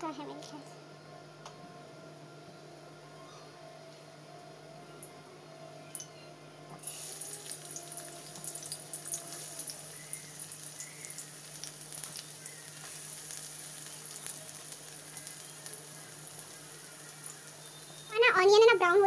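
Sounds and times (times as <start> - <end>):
onion sizzling in hot oil: 6.8 - 18.6
oil crackling: 6.8 - 18.8.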